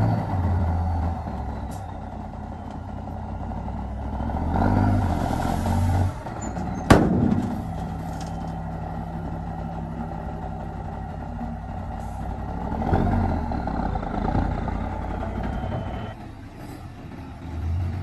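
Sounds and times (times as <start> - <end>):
diesel engines running: 0.0 - 18.0
sharp bang: 6.8 - 7.8.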